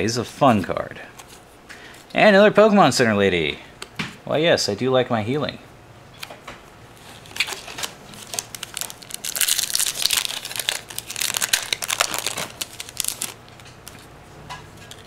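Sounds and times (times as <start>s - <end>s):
foil wrapper crinkling and tearing: 7.0s - 14.1s.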